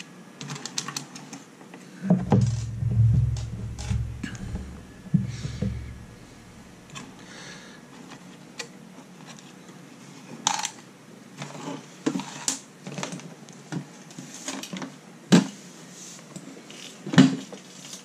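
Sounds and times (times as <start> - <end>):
sharp knock of metal oven: 2.1 - 6.8.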